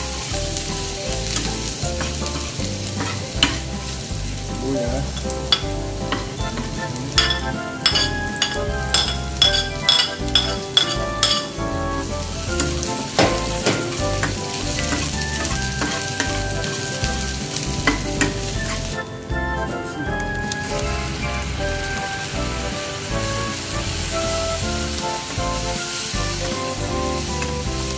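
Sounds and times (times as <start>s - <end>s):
garlic and onion sizzling in oil: 0.0s - 27.9s
metal utensils scraping pan: 0.8s - 4.0s, 5.0s - 19.1s.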